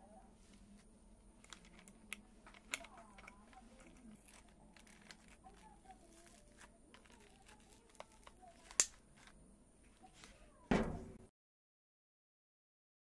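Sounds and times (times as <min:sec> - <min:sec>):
light clicks and taps of handling: 0:00.5 - 0:05.7.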